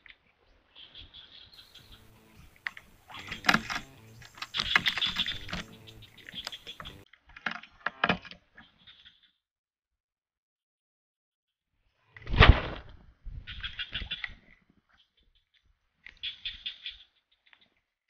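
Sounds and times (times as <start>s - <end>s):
fishing reel clicking and rattling: 2.0s - 7.0s.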